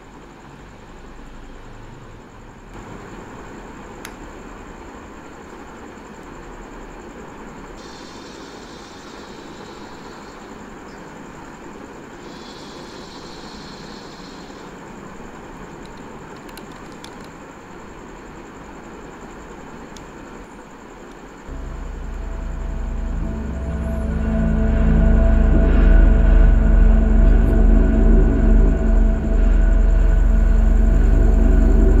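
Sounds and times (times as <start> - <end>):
faint high whine: 0.0 - 16.1, 17.4 - 32.0
dark ambient drone: 0.0 - 32.0
sharp clicks: 15.8 - 17.4.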